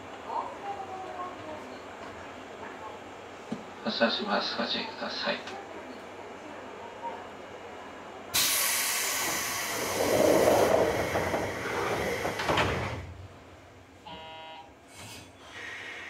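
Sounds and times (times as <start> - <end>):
air hiss of train doors: 8.3 - 13.2, 14.9 - 16.0
sliding doors rumbling shut: 8.4 - 13.6.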